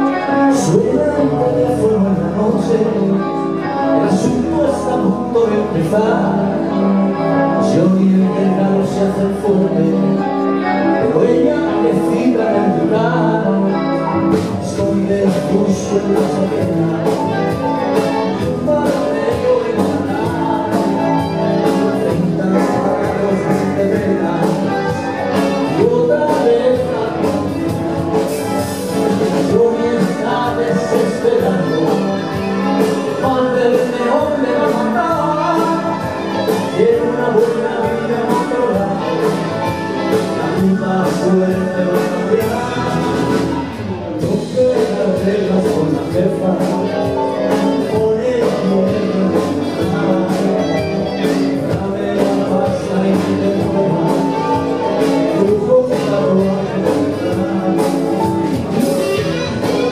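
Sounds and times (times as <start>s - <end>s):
rock band playing live: 0.0s - 59.9s
steady drum beat: 14.4s - 59.9s.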